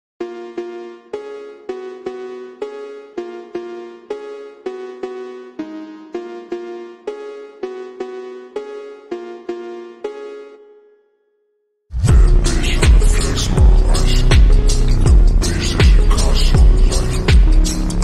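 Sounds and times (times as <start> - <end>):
repeating struck-note melody: 12.0 - 18.0.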